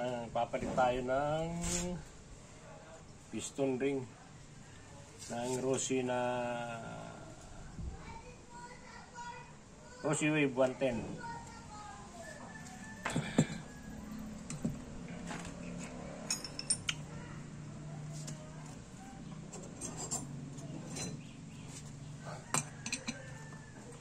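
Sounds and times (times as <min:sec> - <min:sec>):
metal tools clinking on engine: 0:15.4 - 0:17.1, 0:19.5 - 0:21.3, 0:22.5 - 0:23.3.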